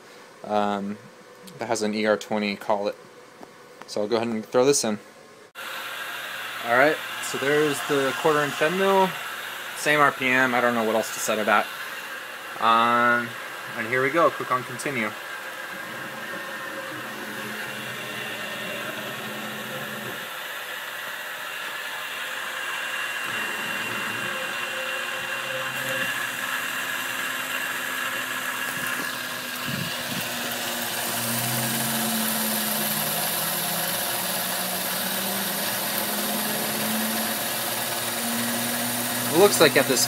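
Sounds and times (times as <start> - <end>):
end mill cutting plastic hiss: 5.6 - 40.0
milling machine running: 5.6 - 40.0.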